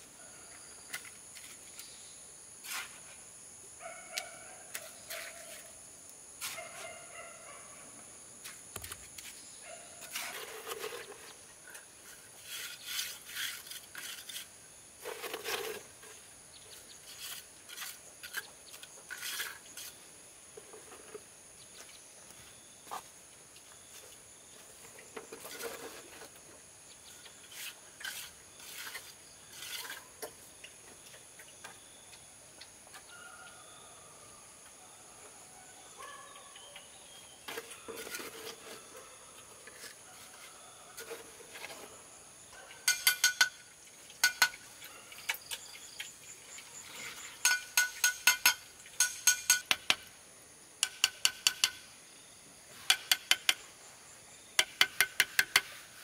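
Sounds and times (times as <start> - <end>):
insects droning: 0.0 - 56.0
trowel scraping and tapping stones: 10.0 - 20.0, 27.1 - 30.4, 42.8 - 46.2, 46.9 - 50.1, 50.8 - 51.8, 52.8 - 53.6, 54.6 - 55.8.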